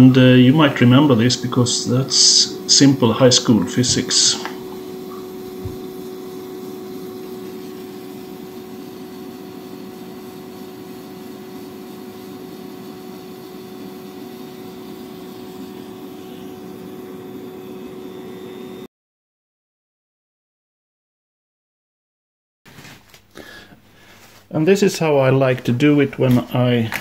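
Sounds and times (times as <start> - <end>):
rotary tool grinding wood: 3.2 - 16.4.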